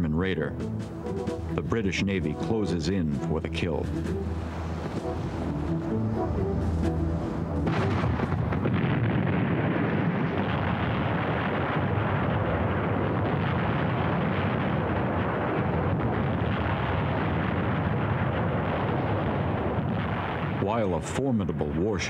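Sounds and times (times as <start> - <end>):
naval gunfire and explosions: 7.4 - 22.0.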